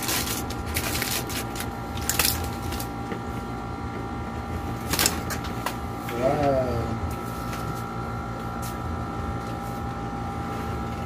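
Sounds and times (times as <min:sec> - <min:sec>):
aluminium foil crinkling: 0:00.0 - 0:03.0, 0:04.8 - 0:05.4
steady hum: 0:00.0 - 0:11.0.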